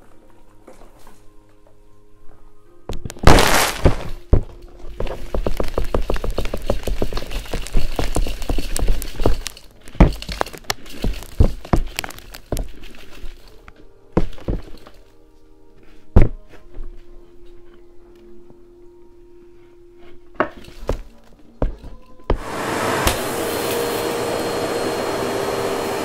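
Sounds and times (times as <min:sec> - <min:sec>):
plastic canister knocking and rattling: 0:03.9 - 0:12.8.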